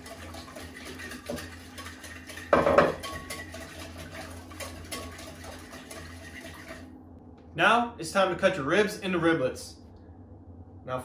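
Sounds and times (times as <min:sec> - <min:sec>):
whisk clinking against bowl: 0:00.0 - 0:06.8.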